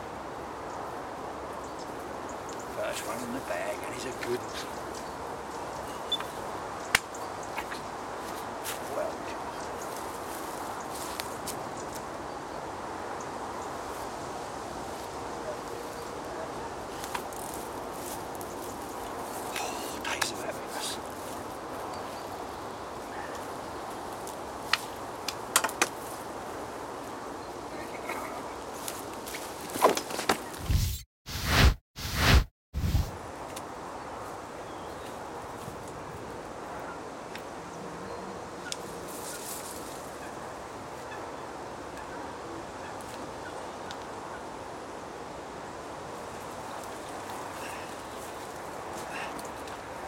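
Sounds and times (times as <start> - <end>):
steady background hiss: 0.0 - 29.5
steady outdoor hush: 0.0 - 50.0.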